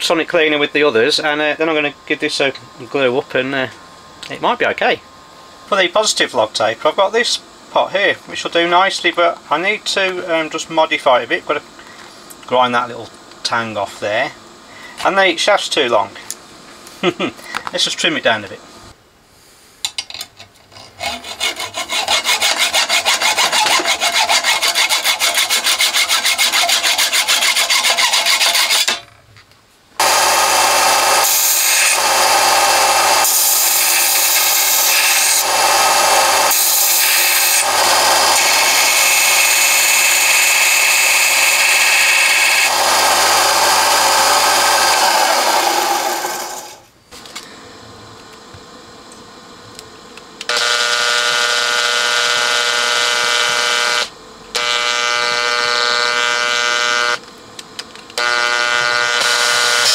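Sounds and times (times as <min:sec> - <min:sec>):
hand tool sawing metal shaft: 0:20.7 - 0:29.0, 0:30.0 - 0:46.8
small power tool grinding: 0:20.7 - 0:29.0, 0:30.0 - 0:46.9, 0:58.2 - 0:59.9.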